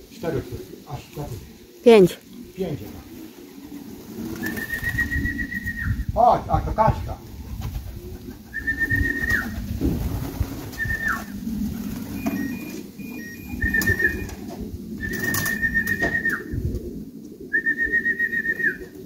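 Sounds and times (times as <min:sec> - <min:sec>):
pigeons cooing: 0:00.0 - 0:19.0
person whistling: 0:17.5 - 0:18.8.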